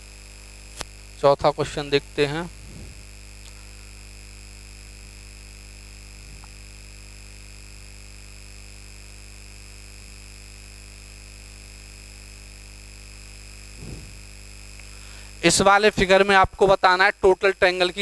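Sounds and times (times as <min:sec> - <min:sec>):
electrical hum: 0:00.0 - 0:18.0
high-pitched whine: 0:01.2 - 0:03.7, 0:13.8 - 0:14.4.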